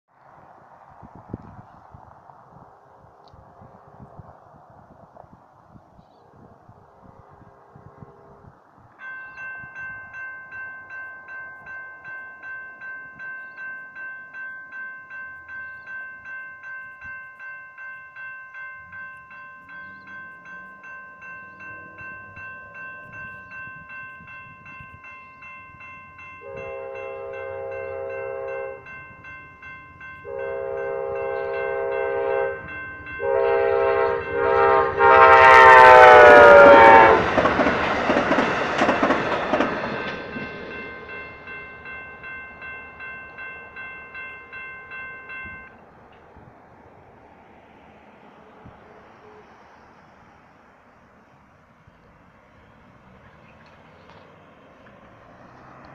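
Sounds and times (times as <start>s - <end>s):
train rumble: 0.2s - 55.9s
railroad crossing bells ringing: 7.1s - 55.9s
diesel locomotive horn: 26.4s - 29.0s, 30.2s - 37.6s, 48.4s - 49.9s.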